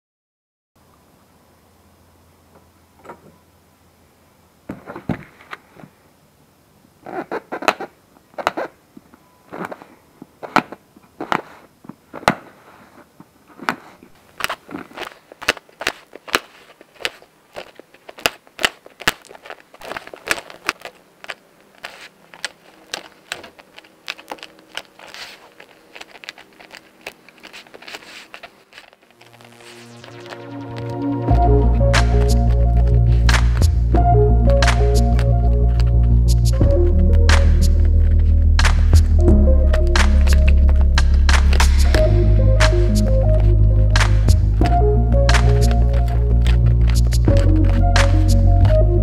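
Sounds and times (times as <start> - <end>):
scraping and handling of cover: 9.5 - 31.0.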